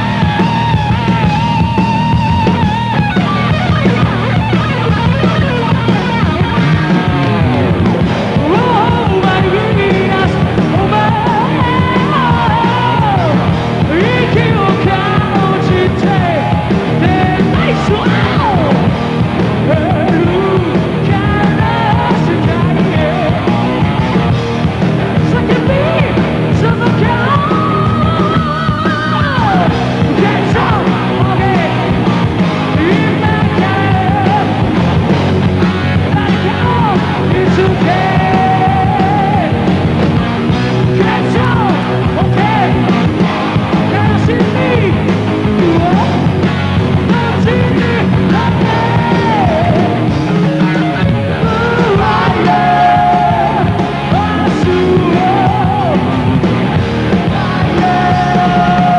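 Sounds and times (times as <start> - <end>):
electric guitar: 0.0 - 58.9
heavy metal band playing: 0.0 - 58.9
man singing: 8.3 - 23.8, 25.1 - 34.8, 35.8 - 39.8, 40.7 - 43.2, 43.8 - 46.4, 47.0 - 56.5, 57.1 - 58.9.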